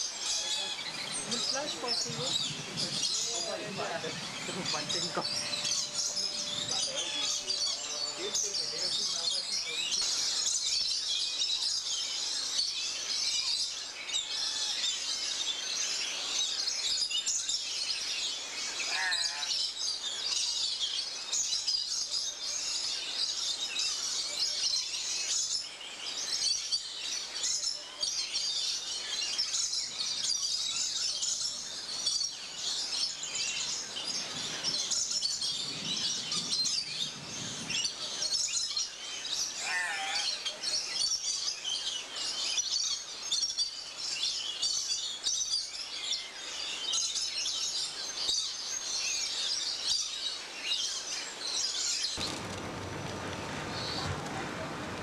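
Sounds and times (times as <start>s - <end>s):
chorus of birds chirping: 0.0s - 55.0s
wavering whistled bird call: 4.5s - 9.6s.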